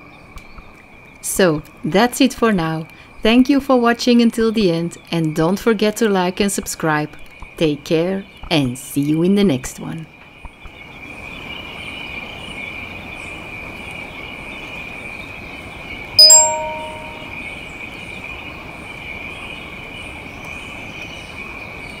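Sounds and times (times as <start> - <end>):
metal bell ringing: 16.2 - 17.3.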